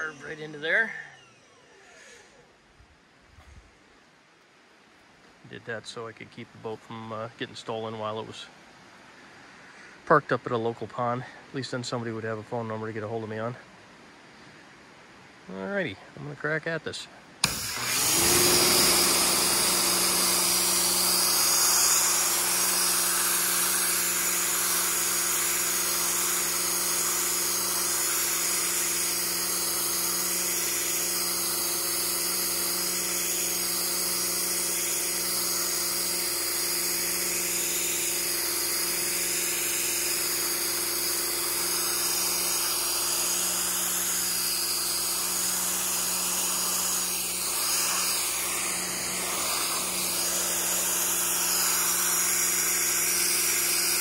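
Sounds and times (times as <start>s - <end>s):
pressure washer hum: 0.0s - 2.4s, 17.4s - 54.0s.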